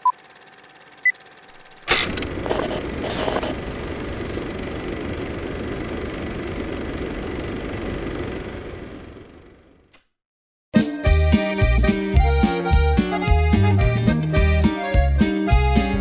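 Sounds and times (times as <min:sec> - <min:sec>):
steady low rumble: 0:02.1 - 0:09.0.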